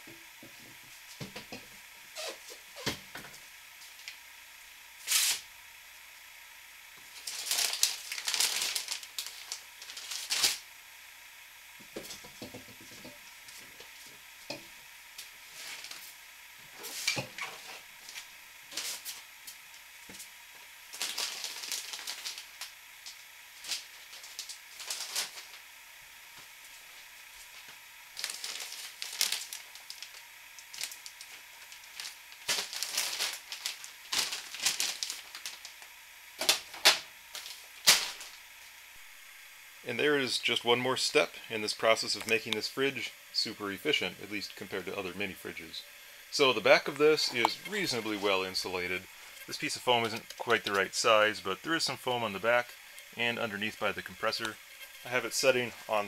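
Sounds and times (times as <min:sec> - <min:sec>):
insulation rustling and crinkling: 0:07.0 - 0:10.6, 0:15.1 - 0:25.6, 0:26.4 - 0:39.1, 0:46.4 - 0:56.0.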